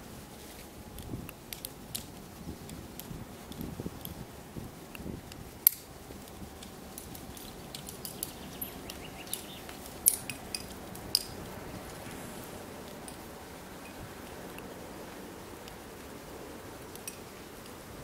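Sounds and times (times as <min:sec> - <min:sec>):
climbing gear clinking: 0:05.0 - 0:12.2.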